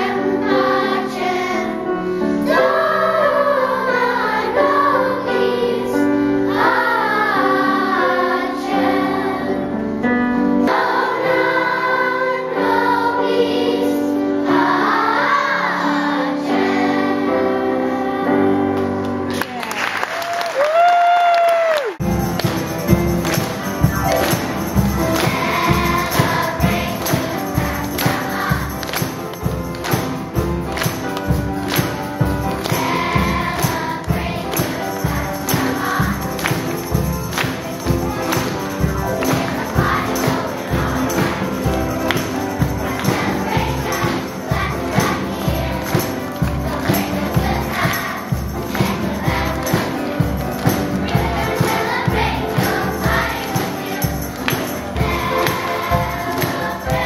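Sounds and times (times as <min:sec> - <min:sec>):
children's choir singing: 0:00.0 - 0:19.3, 0:22.0 - 0:57.0
music with steady beat: 0:22.0 - 0:57.0.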